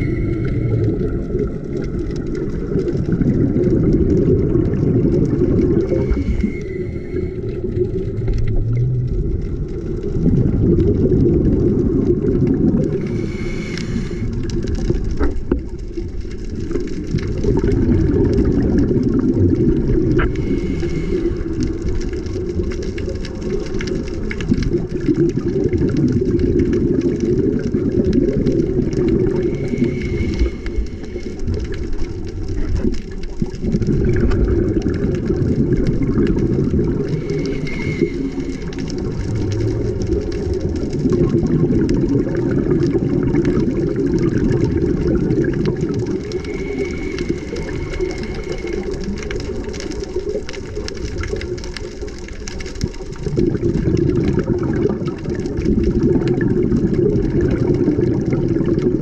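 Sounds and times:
faint crackling ticks: 0.0 - 59.0
muffled underwater rumble: 0.0 - 59.0.

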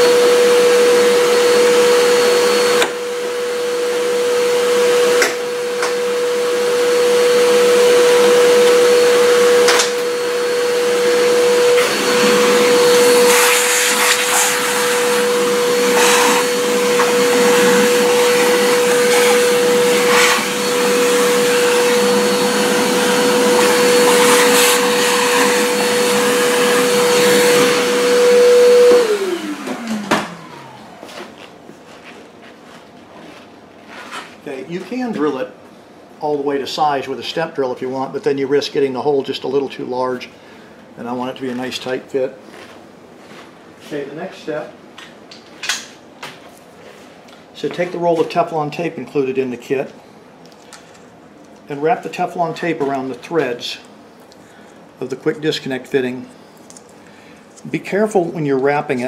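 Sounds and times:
vacuum motor winding down: 0.0 - 31.1
shop vacuum whining: 0.0 - 44.8, 45.7 - 59.0.

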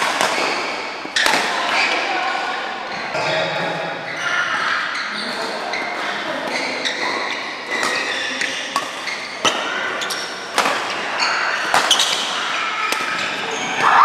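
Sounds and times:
rackets striking shuttlecock: 0.0 - 2.5, 6.4 - 13.8.

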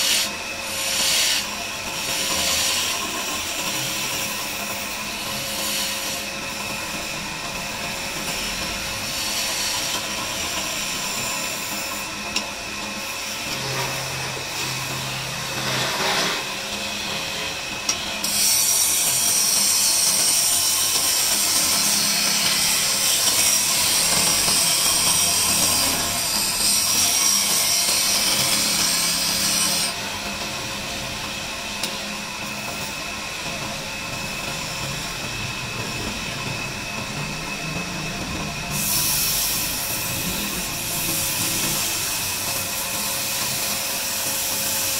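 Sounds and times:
chisel scraping spinning wood: 0.0 - 4.1
lathe motor hum: 0.0 - 44.9.

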